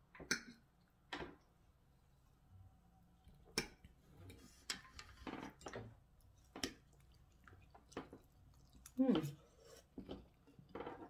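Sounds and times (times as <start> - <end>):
soft wet food sounds: 0.0 - 11.0.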